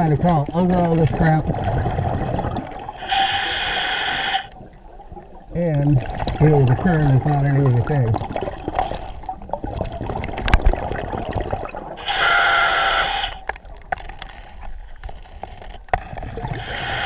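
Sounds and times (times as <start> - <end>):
low rumble of water: 0.0 - 3.5, 4.4 - 17.0
regulator breath hissing: 3.0 - 4.5, 12.0 - 13.4, 16.5 - 17.0.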